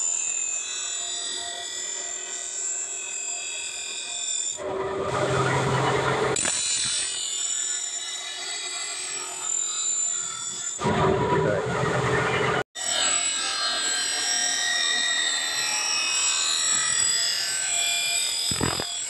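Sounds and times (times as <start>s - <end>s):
blade grinding on grinding wheel: 12.9s - 19.0s
grinder motor running: 18.5s - 18.9s.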